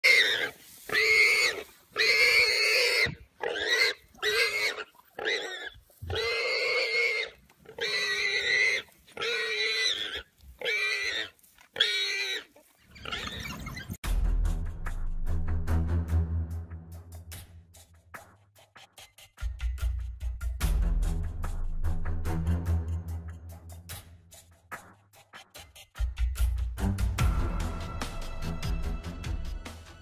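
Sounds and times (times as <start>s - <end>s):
music: 14.0s - 30.0s.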